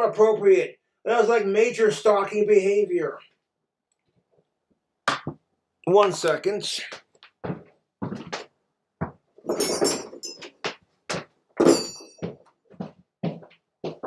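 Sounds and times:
metallic clinks: 0:09.4 - 0:10.7, 0:11.6 - 0:12.2.

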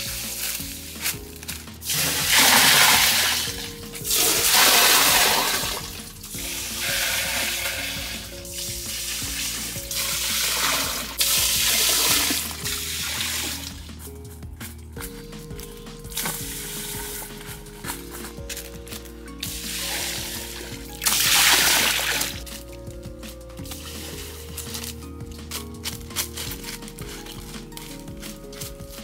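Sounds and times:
soft music: 0:00.0 - 0:29.0
water gushing into a pool: 0:01.8 - 0:08.2, 0:09.0 - 0:13.7, 0:21.0 - 0:22.4.

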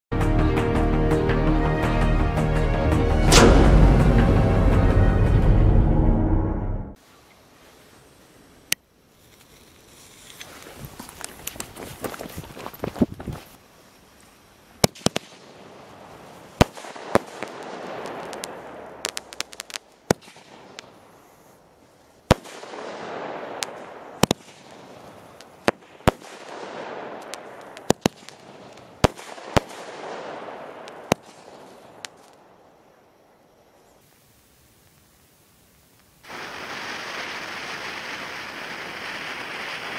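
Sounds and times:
firework bangs: 0:03.2 - 0:05.4, 0:14.8 - 0:21.2, 0:22.2 - 0:32.5, 0:36.2 - 0:39.9
rushing hiss: 0:33.9 - 0:39.9.

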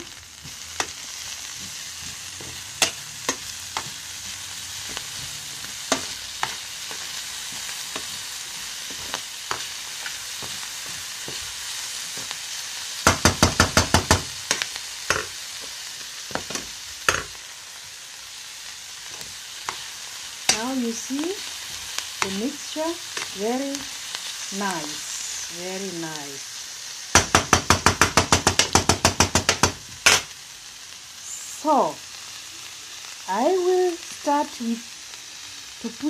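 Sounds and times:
onions sizzling in frying pan: 0:00.0 - 0:36.0
spoon tapping pan: 0:04.8 - 0:08.2, 0:13.0 - 0:15.4.

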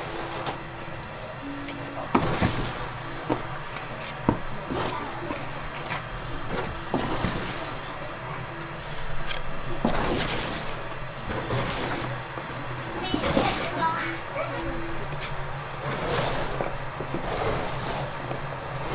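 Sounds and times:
steady low hum: 0:00.0 - 0:18.9
metal scrapers on metal slab: 0:04.0 - 0:07.9, 0:09.8 - 0:12.2, 0:15.2 - 0:18.9.

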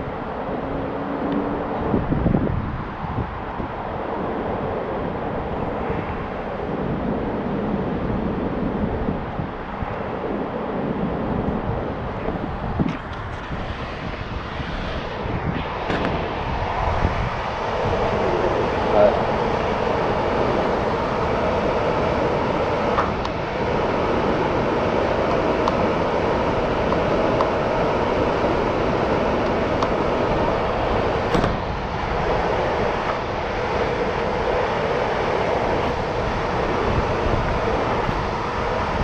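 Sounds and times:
air conditioning fan roar: 0:00.0 - 0:39.0.

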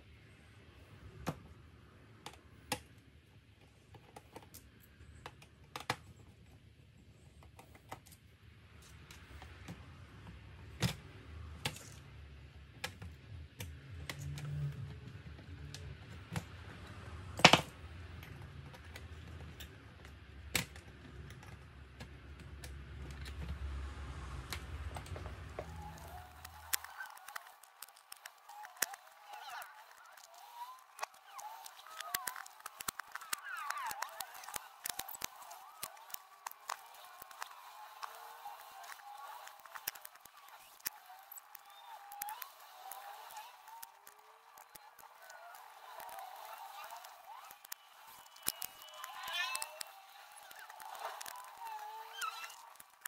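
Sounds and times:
light clicks and taps on laptop: 0:24.4 - 0:53.0.

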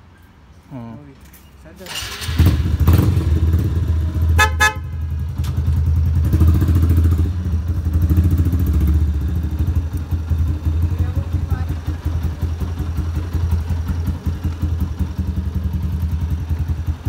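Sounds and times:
motorcycle engine idling: 0:02.5 - 0:17.0
motorcycle horn toots: 0:04.2 - 0:05.3.

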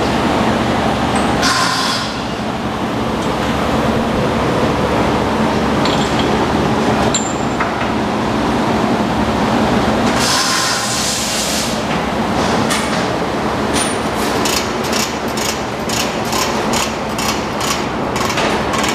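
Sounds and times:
steady loud rumble: 0:02.2 - 0:10.2
burst of hiss: 0:10.2 - 0:11.8.

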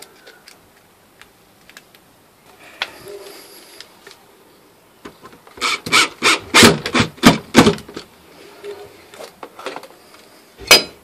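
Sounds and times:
cordless drill driving screws: 0:05.6 - 0:06.8.

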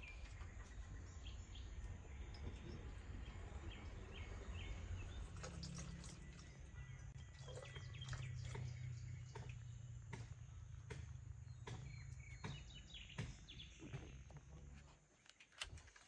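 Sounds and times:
birds chirping faintly: 0:00.0 - 0:16.0
liquid pouring into churn: 0:05.2 - 0:08.7.

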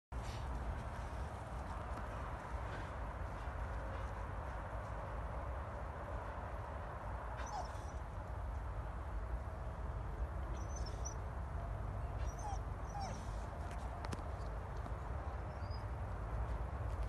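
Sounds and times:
dog yelping: 0:07.4 - 0:08.0, 0:12.2 - 0:13.4.

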